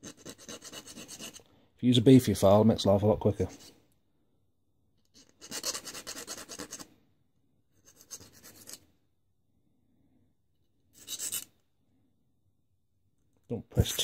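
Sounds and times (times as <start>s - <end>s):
file rasping on metal: 0.0s - 1.4s, 5.2s - 6.9s.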